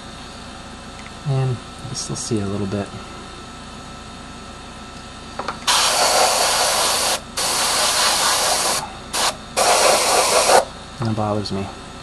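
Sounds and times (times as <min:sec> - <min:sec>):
airbrush spraying in hissing bursts: 0:05.7 - 0:10.7.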